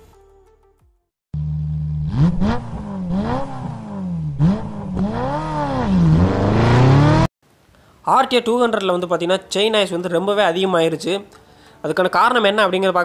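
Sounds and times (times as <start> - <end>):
motorcycle engine revving: 1.4 - 7.3.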